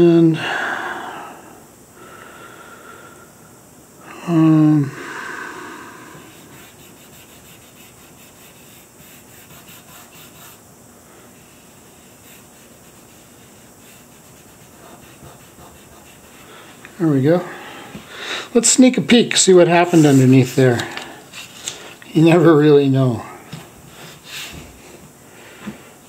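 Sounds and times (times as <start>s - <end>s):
person humming: 4.0s - 6.7s
fingertip rubbing on paper: 6.2s - 10.6s, 11.4s - 16.9s, 19.8s - 20.8s.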